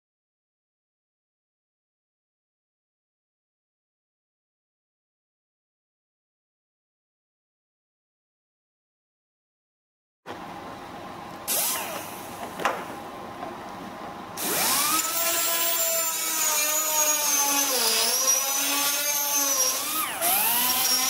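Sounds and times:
pneumatic tool whine: 11.5 - 12.4, 14.4 - 21.0.

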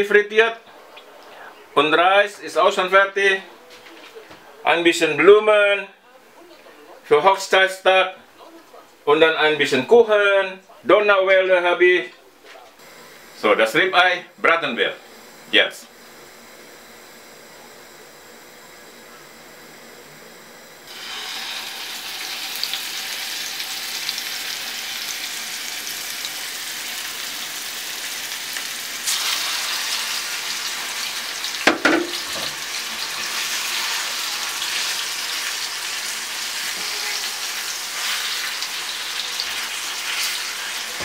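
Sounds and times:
steaks sizzling in a frying pan: 20.9 - 41.0.

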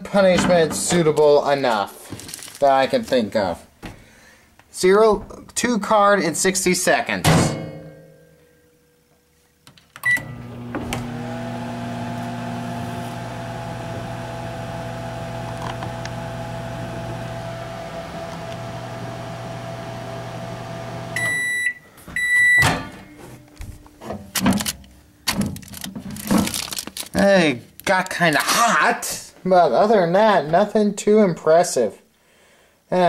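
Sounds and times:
microwave key-press beep: 10.0 - 10.3, 21.2 - 22.7
long microwave beeps: 10.0 - 10.4, 21.2 - 22.8
microwave oven humming: 10.0 - 21.6.

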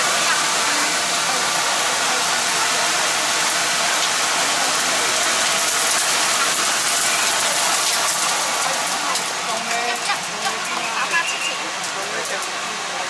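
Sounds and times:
gas burners hissing: 0.0 - 13.0.

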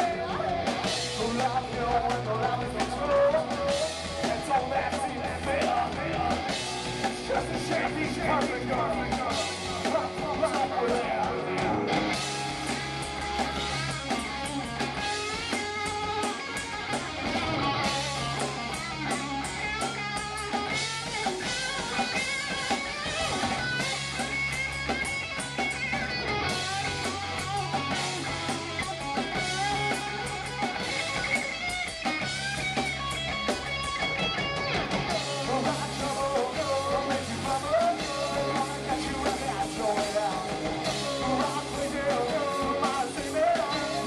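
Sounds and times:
distorted electric guitars: 0.0 - 44.0
drum kit: 0.0 - 44.0
low bass: 0.0 - 44.0.

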